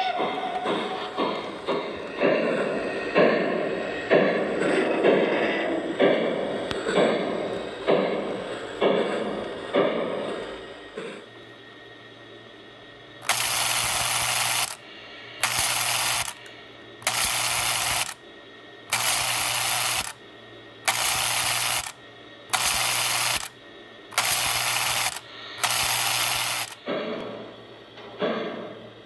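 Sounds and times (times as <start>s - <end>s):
toy train mechanism buzzing: 13.1s - 26.9s.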